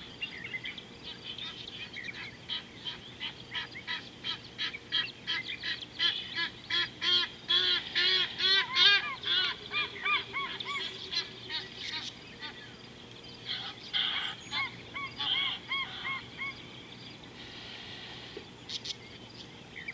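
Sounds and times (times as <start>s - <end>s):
bird honking calls: 0.0s - 12.8s, 13.4s - 19.0s.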